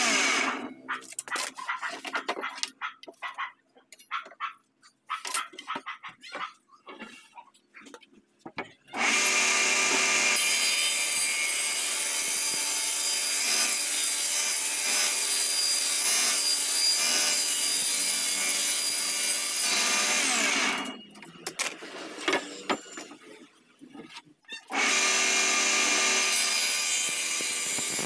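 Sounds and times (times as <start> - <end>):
table saw running: 9.0 - 20.9, 24.7 - 28.0.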